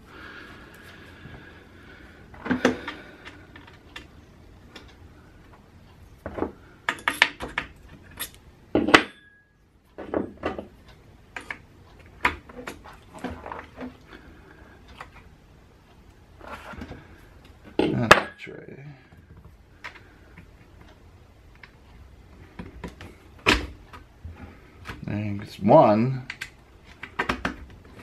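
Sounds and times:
metal parts clicking and clinking: 6.9 - 9.3.

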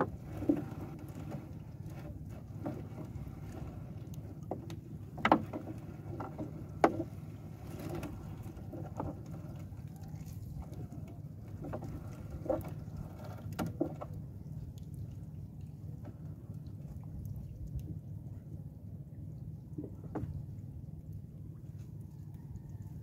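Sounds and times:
steady low rumble: 0.0 - 23.0
sharp knocks on boat: 4.5 - 7.1, 19.8 - 20.4.

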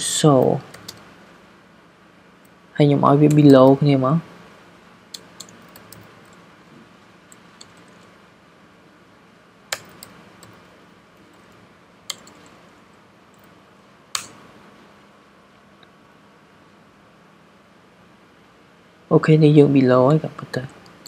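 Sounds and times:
faint steady hum: 0.0 - 21.0
keyboard key presses: 9.7 - 10.6, 12.1 - 12.6.

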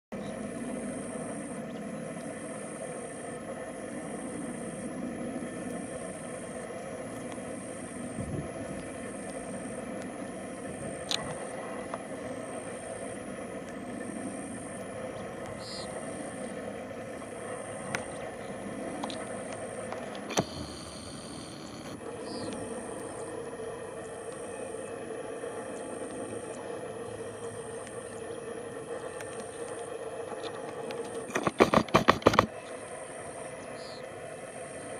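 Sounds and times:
faint high pulsing sound: 0.1 - 34.9
low outdoor hum: 0.1 - 34.9
loud clicks and rattling: 30.4 - 32.5.

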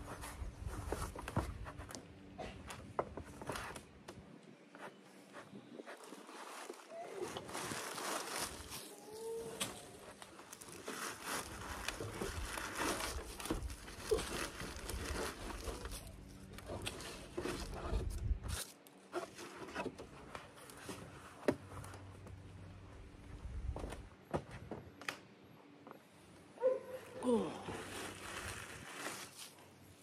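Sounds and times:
dry leaves crackling and rustling: 6.0 - 17.7, 27.5 - 29.6.

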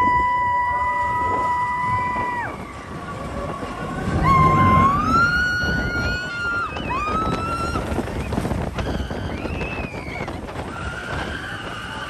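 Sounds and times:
steady low rumble: 0.8 - 8.8.

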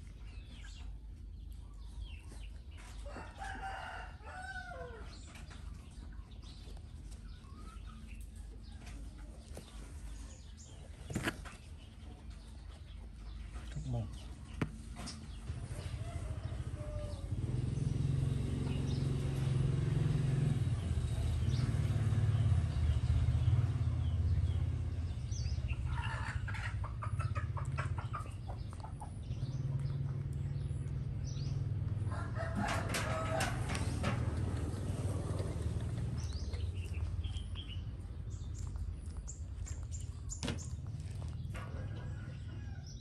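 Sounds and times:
chickens clucking: 0.0 - 18.0, 24.1 - 43.0
low rumble: 15.2 - 43.0.

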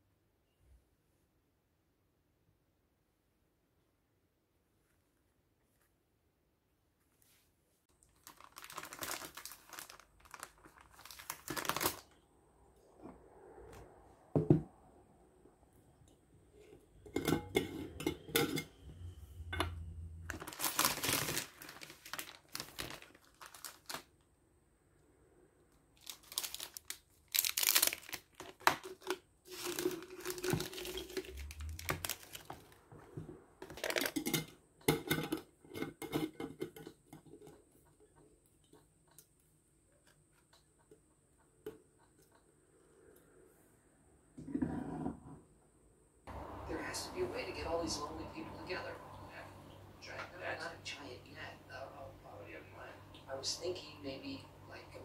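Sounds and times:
plastic wrappers crinkling and tearing: 7.9 - 12.2, 20.3 - 24.3, 26.0 - 32.8, 33.6 - 34.4.

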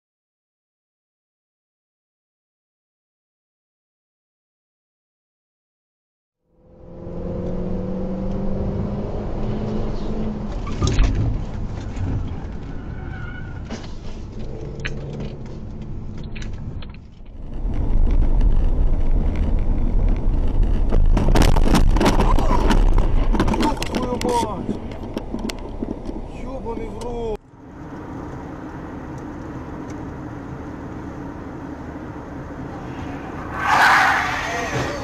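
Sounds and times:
road noise: 6.4 - 35.0
car engine running: 13.8 - 33.6
collision bangs and crunches: 20.4 - 26.3.

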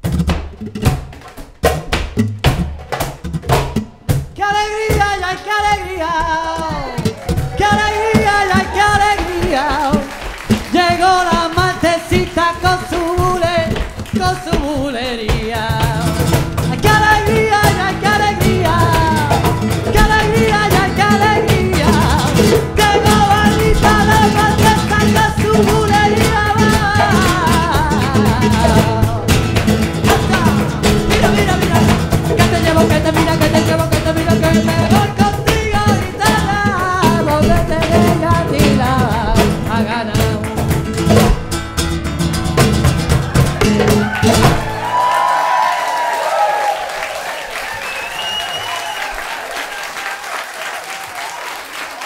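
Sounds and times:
hand drums: 0.0 - 45.4
flamenco guitar: 0.0 - 50.2
man singing flamenco: 4.1 - 44.7.

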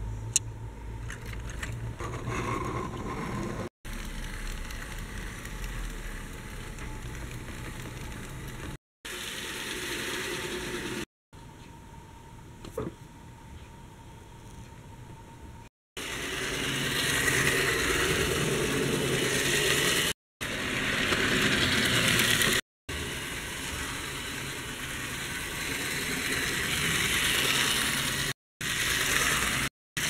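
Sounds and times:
model train motor whirring: 1.2 - 11.1, 16.0 - 29.7.

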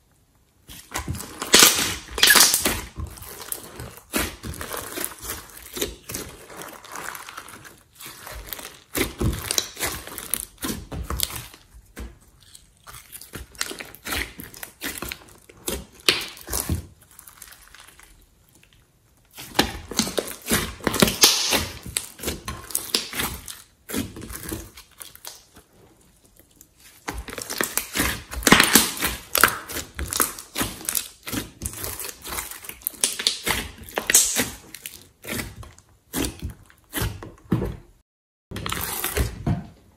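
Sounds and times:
slime squishing and clicking: 26.9 - 36.3.

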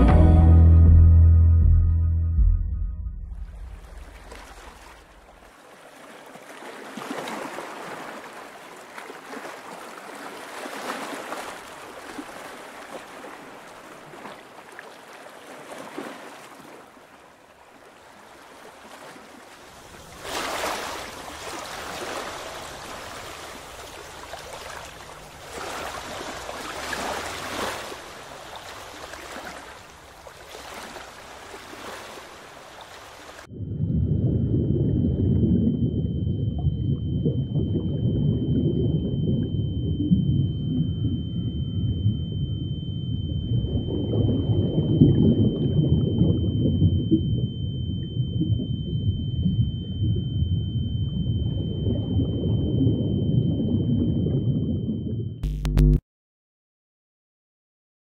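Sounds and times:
low rumble: 0.0 - 5.5, 33.5 - 56.0
water washing and lapping: 3.5 - 33.5
thin steady high tone: 34.8 - 55.6.

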